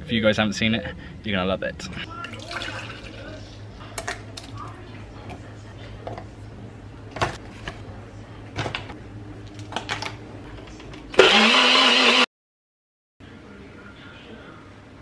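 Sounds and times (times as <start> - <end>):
blender motor running: 11.2 - 12.3.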